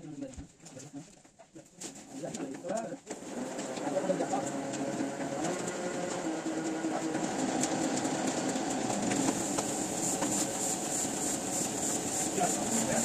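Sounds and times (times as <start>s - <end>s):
printing press running: 3.1s - 13.0s.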